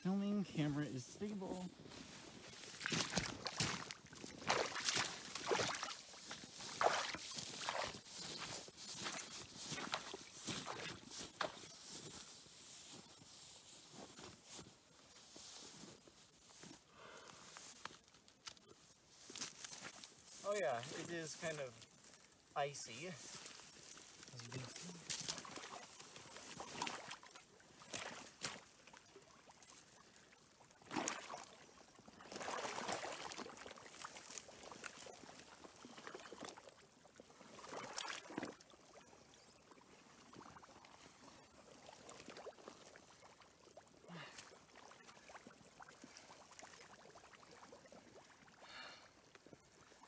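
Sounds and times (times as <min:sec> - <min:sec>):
water splashing and sloshing: 0:01.2 - 0:16.8, 0:17.5 - 0:50.0.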